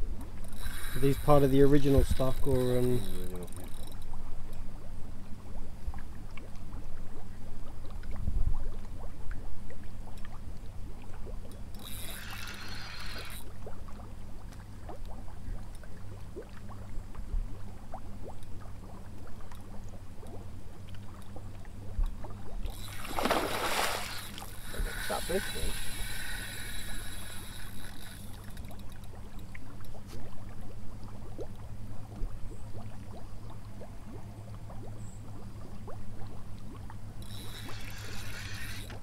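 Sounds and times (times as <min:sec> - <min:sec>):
fish splashing at surface: 0:22.7 - 0:29.0.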